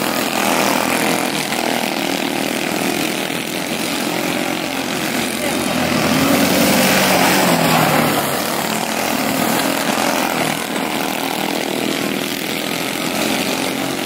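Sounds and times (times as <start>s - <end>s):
small race car engines buzzing: 0.0s - 14.0s.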